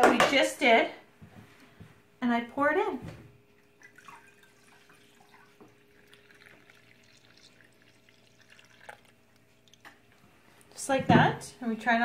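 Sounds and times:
faint steady hum: 0:00.0 - 0:12.0
milk trickling into jar: 0:03.6 - 0:10.3.

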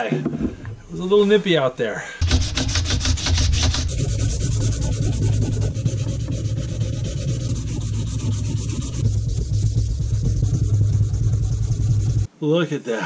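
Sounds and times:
sandpaper rasping on wood: 0:02.2 - 0:12.3.

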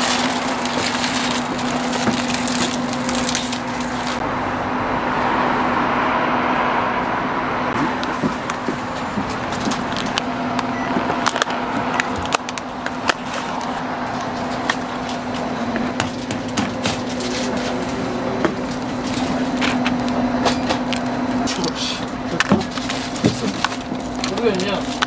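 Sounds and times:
plastic egg pack crackling: 0:00.0 - 0:04.2, 0:22.4 - 0:25.0.

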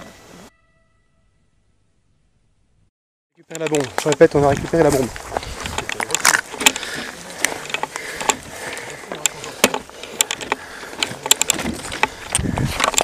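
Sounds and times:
gear clicking and rattling: 0:03.4 - 0:13.0.

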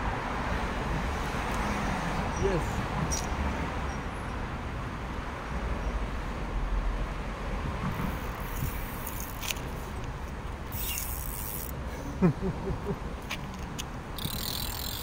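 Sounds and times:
river-bank ambience: 0:00.0 - 0:15.0
road traffic rumble: 0:00.0 - 0:15.0
high hissing bursts: 0:10.7 - 0:11.7.

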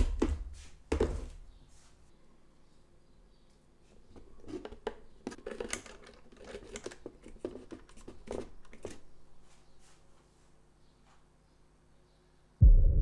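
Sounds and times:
clicks and knocks of parts handled: 0:04.4 - 0:09.1.

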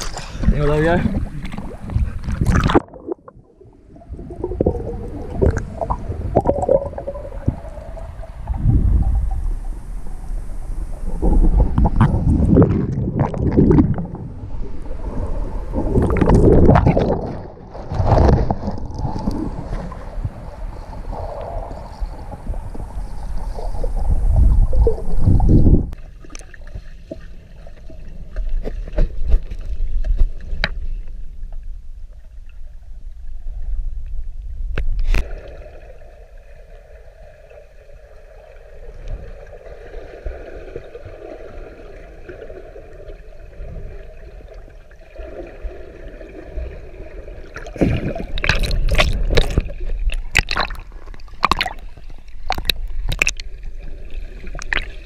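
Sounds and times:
underwater water rumble: 0:00.0 - 0:55.0
underwater clicks and knocks: 0:28.3 - 0:31.7, 0:47.6 - 0:53.5, 0:54.5 - 0:55.0
loud water splashes: 0:47.6 - 0:51.9.

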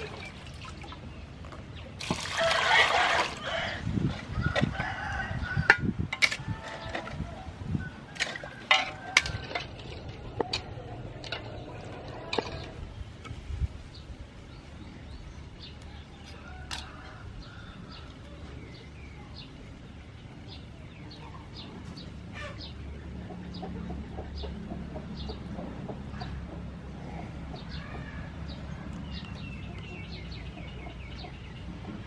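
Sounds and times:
chickens clucking: 0:06.6 - 0:13.4, 0:14.7 - 0:32.0.

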